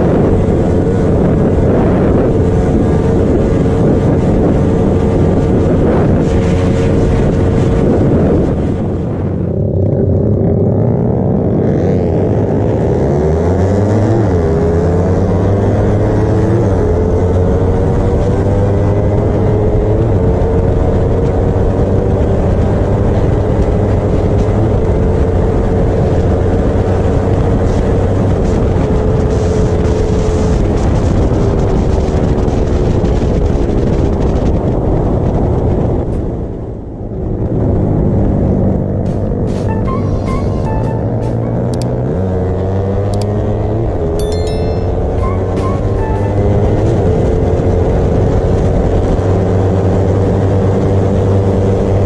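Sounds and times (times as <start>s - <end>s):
wind rush: 0.0s - 10.7s
motorcycle engine running hard: 0.0s - 52.0s.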